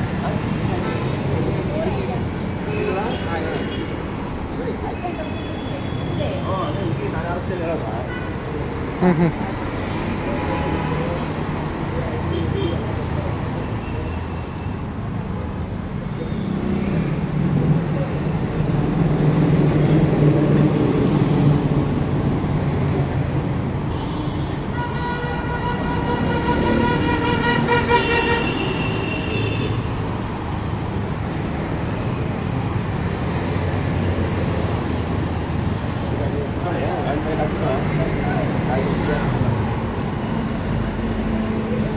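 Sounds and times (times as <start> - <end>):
street traffic rumble: 0.0 - 41.9
long steady horn toot: 24.2 - 29.8.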